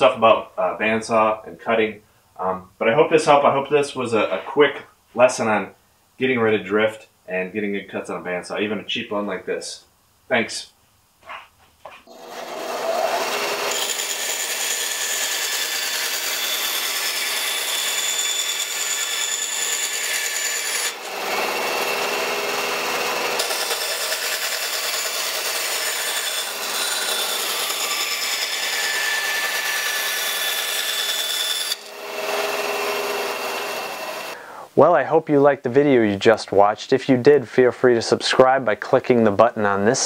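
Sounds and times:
bandsaw motor whine: 12.1 - 34.4.

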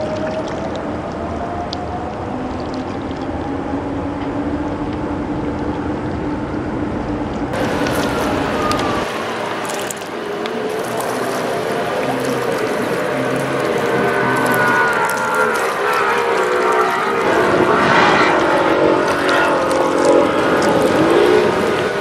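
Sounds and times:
diesel engine droning: 3.2 - 22.0
rush of water from bow wave: 7.6 - 22.0.

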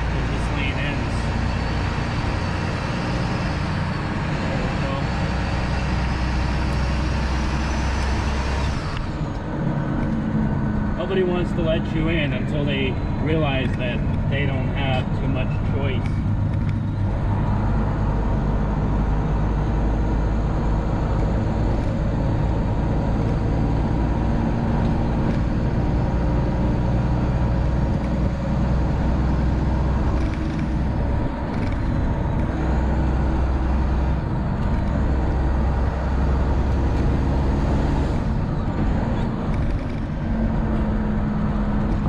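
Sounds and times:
diesel truck engine running: 0.0 - 42.0
road noise: 0.0 - 42.0.

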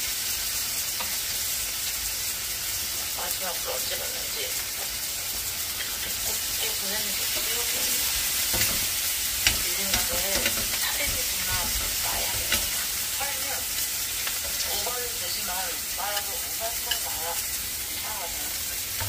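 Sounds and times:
meat sizzling on a grill pan: 0.0 - 19.0
metal tongs clicking against pan: 7.3 - 13.0, 14.1 - 14.9, 16.1 - 17.5.

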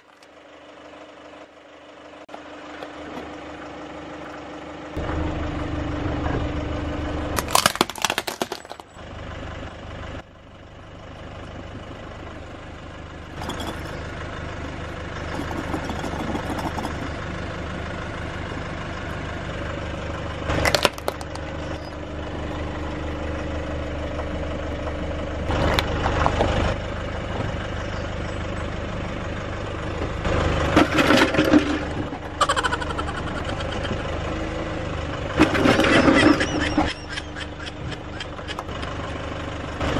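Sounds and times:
car engine idling: 0.0 - 39.9
plastic toys cracking and crunching: 7.4 - 8.9, 20.6 - 21.4.

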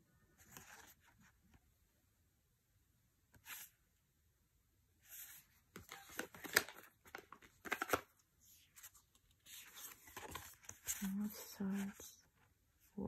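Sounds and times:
cards sliding and swishing: 3.4 - 3.7.

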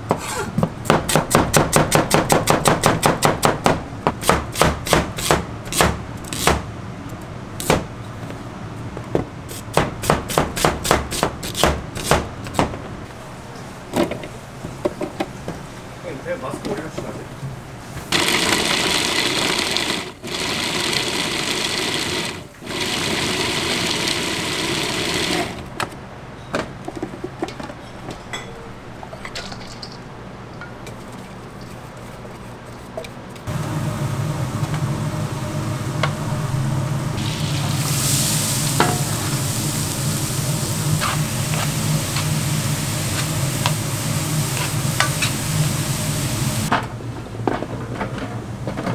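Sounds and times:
food processor running: 18.1 - 25.6
food sizzling in a pan: 37.2 - 46.7.

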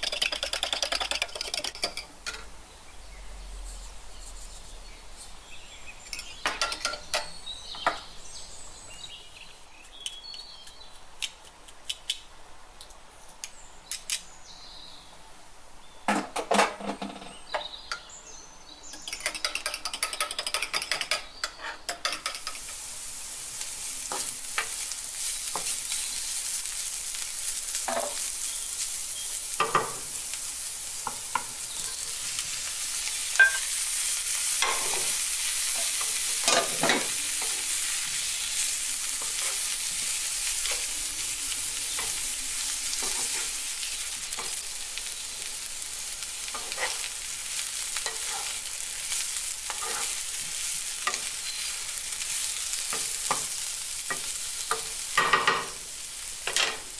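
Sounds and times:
vegetables sizzling in frying pan: 0.0 - 2.8, 18.8 - 56.9
wooden spatula scraping pan: 46.5 - 47.1, 48.0 - 48.6, 49.7 - 50.6.

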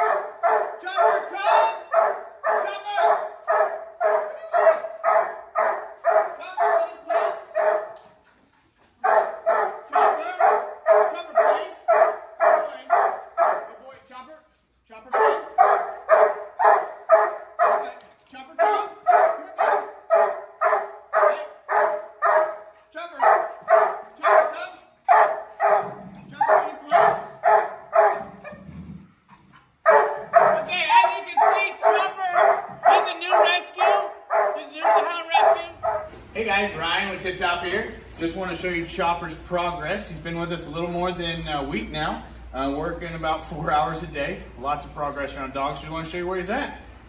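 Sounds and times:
dog barking: 0.0 - 8.0, 9.0 - 13.7, 15.1 - 18.0, 18.6 - 28.6, 29.8 - 36.2.

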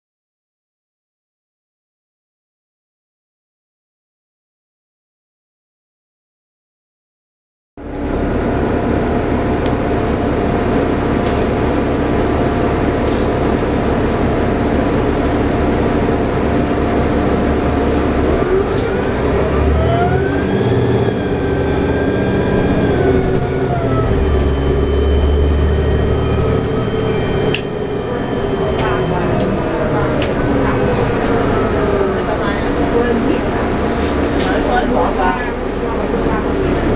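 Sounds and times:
bus diesel engine: 7.8 - 36.9.

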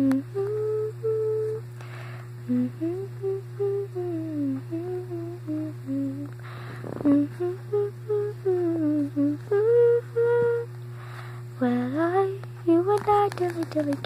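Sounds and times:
woman humming: 0.0 - 1.8, 2.4 - 10.8, 11.4 - 14.0
low background hum: 0.0 - 14.0
breath: 1.8 - 2.4, 6.4 - 7.0, 10.9 - 11.5.

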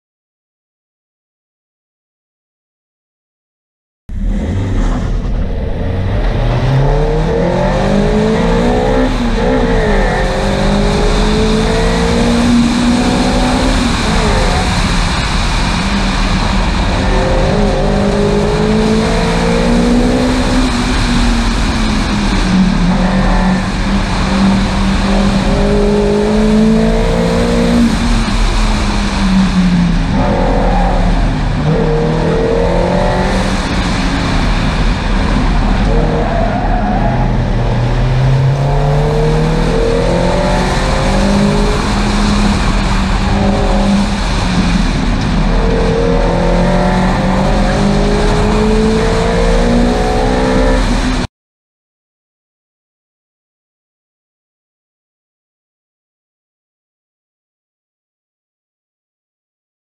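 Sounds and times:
car engine accelerating and shifting: 4.1 - 51.3
wind and road noise: 4.1 - 51.3.

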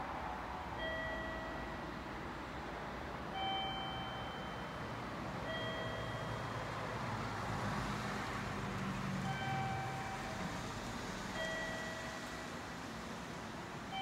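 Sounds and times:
electronic two-note chime: 3.4 - 4.8, 9.3 - 10.5.

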